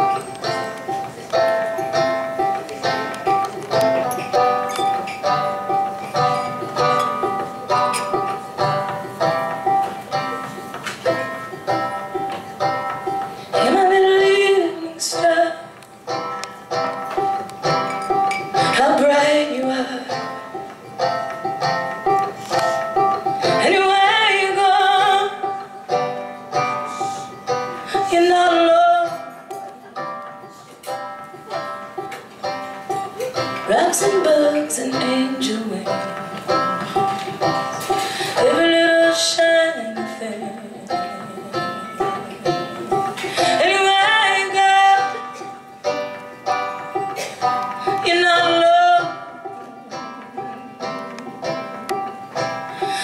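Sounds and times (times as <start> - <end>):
folk band playing: 0.0 - 53.0
picked banjo: 0.0 - 53.0
strummed acoustic guitar: 0.0 - 53.0
woman singing with vibrato: 13.5 - 15.9, 18.5 - 20.6, 23.4 - 25.8, 27.8 - 30.0, 33.6 - 36.7, 38.1 - 45.7, 47.8 - 51.8.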